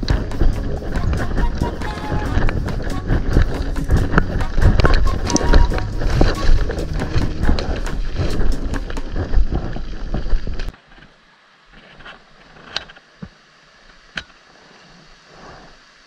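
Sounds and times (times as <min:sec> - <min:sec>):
footsteps crunching on gravel: 0:00.0 - 0:10.8
wind rumbling on microphone: 0:00.0 - 0:10.8
stream rushing: 0:00.0 - 0:16.0.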